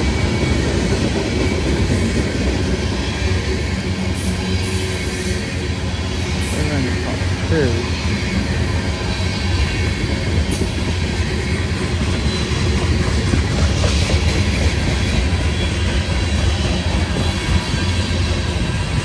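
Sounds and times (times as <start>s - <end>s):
train wheels running on rails: 0.0s - 19.0s.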